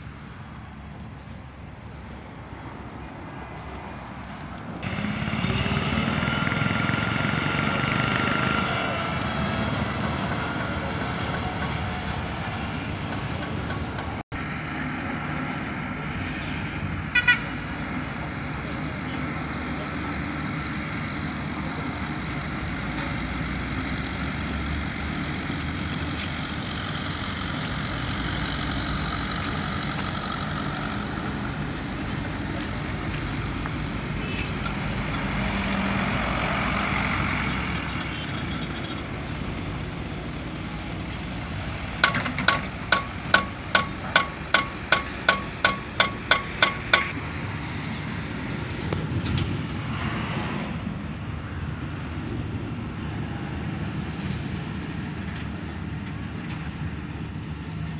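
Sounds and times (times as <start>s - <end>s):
diesel machinery running: 0.0s - 57.9s
hammer striking metal: 42.0s - 47.1s.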